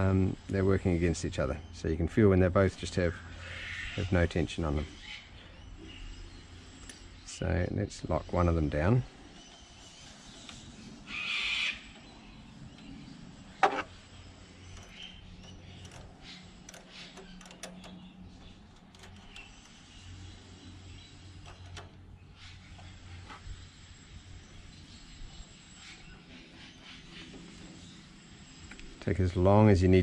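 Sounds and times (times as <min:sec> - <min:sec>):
spanners clicking on metal linkage: 0:13.5 - 0:22.0.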